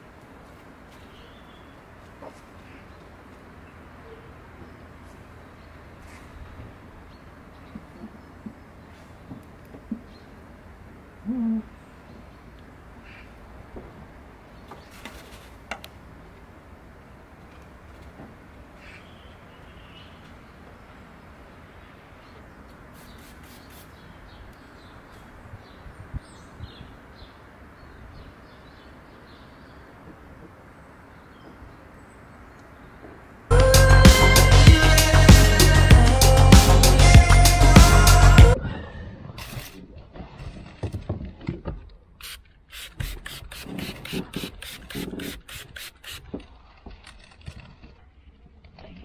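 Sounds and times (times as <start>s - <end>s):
small birds chirping: 0.9s - 10.6s, 18.8s - 33.3s
spray bottle squirting: 22.9s - 24.0s, 42.2s - 46.4s
short hissy bursts: 22.9s - 24.1s, 42.2s - 46.3s
music: 33.5s - 38.6s.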